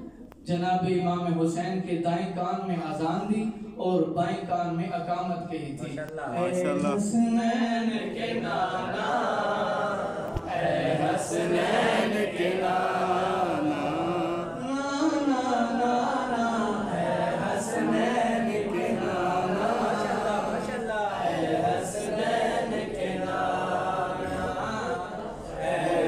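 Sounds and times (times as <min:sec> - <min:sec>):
men chanting into microphone: 0:06.4 - 0:26.0.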